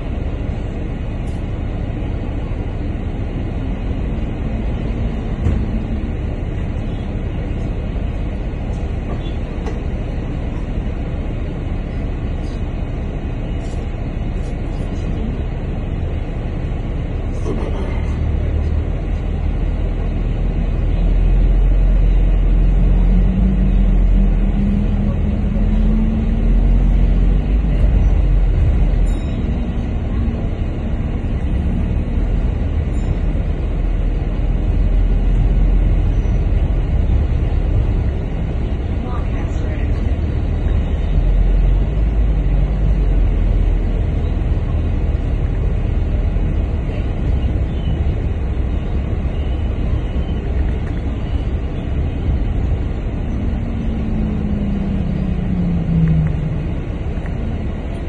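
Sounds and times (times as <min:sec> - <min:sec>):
bus engine rumble from inside: 0:00.0 - 0:58.0.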